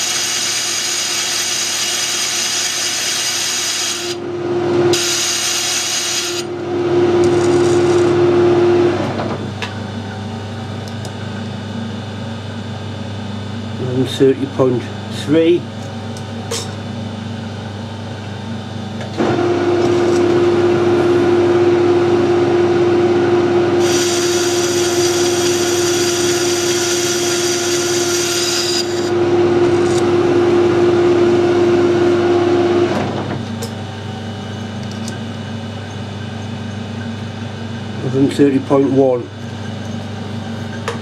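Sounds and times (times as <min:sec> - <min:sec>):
high-pitched metal cutting: 0:00.0 - 0:04.2, 0:04.9 - 0:08.4, 0:23.8 - 0:30.5
metal lathe running: 0:00.0 - 0:09.2, 0:19.1 - 0:33.1
steady lathe whine: 0:00.0 - 0:41.0.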